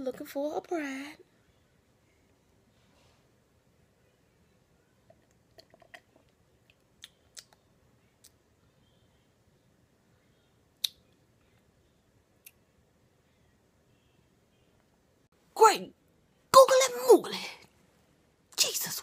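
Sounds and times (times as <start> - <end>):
sipping and swallowing: 5.1 - 7.6
mouth clicks: 5.6 - 7.6, 10.8 - 11.1.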